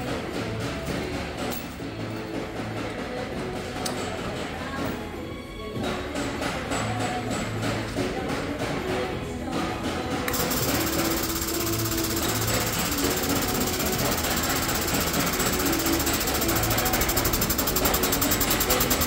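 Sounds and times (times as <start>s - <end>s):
air tool rattling: 10.3s - 19.0s.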